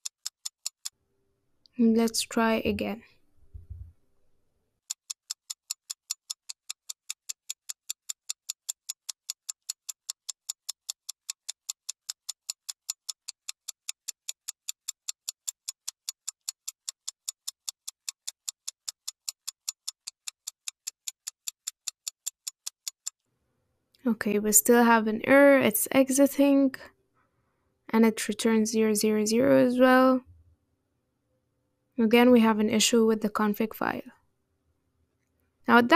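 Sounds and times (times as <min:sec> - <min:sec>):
clock ticking: 0:00.0 - 0:00.9, 0:04.9 - 0:23.2.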